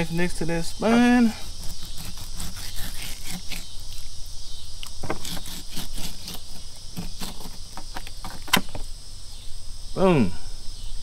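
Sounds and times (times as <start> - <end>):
insects hissing: 0.0 - 11.0
knife scraping fish spine: 1.2 - 4.1, 5.0 - 8.6.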